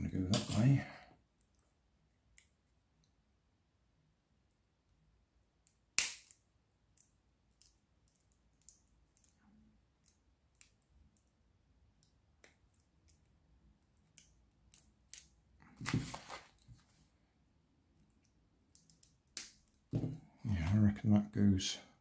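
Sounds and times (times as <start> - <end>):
paper sheet rustling: 15.8 - 17.0
plastic pieces clicking with pliers: 18.1 - 19.8.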